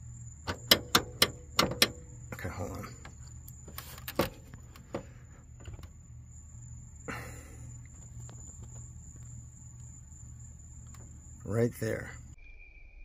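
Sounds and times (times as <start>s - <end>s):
clicks and taps on hood latch: 0.4s - 2.2s, 3.0s - 6.0s.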